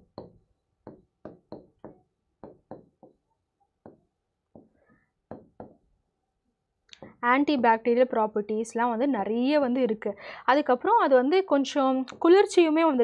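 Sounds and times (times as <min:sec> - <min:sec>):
pen tapping on glass: 0:00.0 - 0:03.2, 0:03.8 - 0:04.7, 0:05.3 - 0:05.8.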